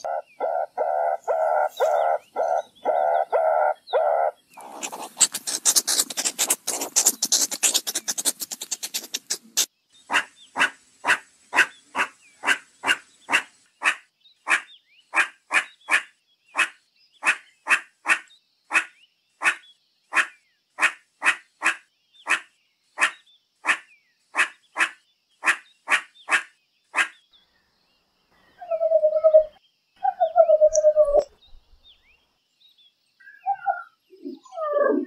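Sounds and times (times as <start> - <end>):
meerkat giving sharp calls: 4.6 - 16.0.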